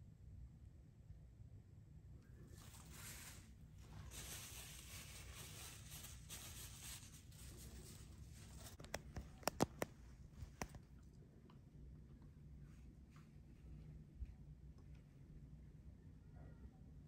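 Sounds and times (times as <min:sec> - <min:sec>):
canvas rustling and scraping: 0:02.5 - 0:10.8.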